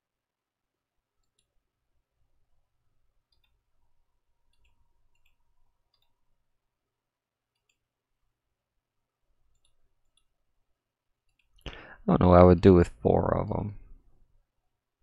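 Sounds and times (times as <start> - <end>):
computer mouse clicks: 1.2 - 1.6, 3.2 - 3.7, 4.4 - 6.3, 7.5 - 7.9, 9.4 - 10.4, 11.2 - 11.6.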